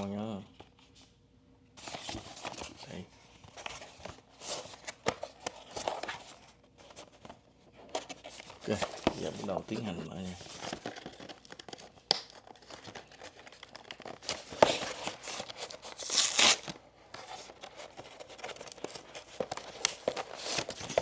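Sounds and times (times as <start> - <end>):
cardboard rustling: 1.8 - 21.0
cardboard flap tearing: 10.5 - 16.8.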